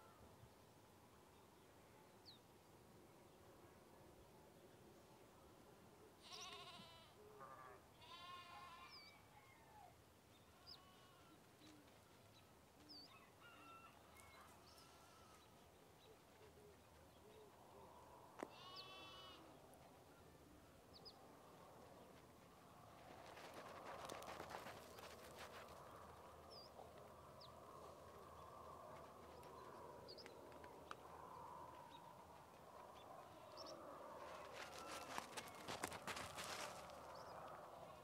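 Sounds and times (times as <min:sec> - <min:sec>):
livestock bleating faintly: 0:06.2 - 0:09.2, 0:10.5 - 0:11.5, 0:14.2 - 0:15.6, 0:18.4 - 0:19.6, 0:33.1 - 0:35.8.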